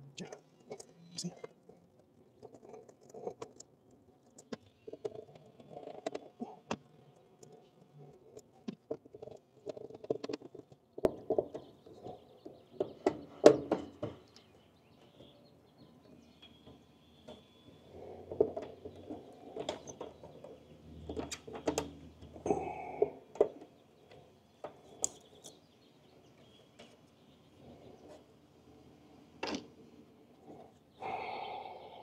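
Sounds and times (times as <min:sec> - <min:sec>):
clicks and taps of wiring: 0:18.4 - 0:22.4, 0:23.3 - 0:25.6.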